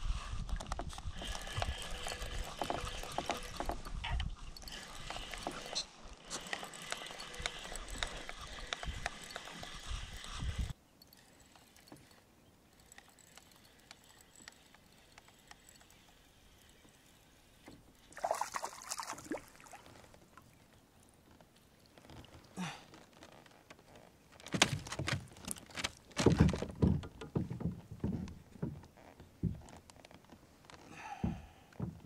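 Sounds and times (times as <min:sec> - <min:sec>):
fishing reel clicks: 0:04.6 - 0:17.2
fish splashing: 0:18.1 - 0:20.0.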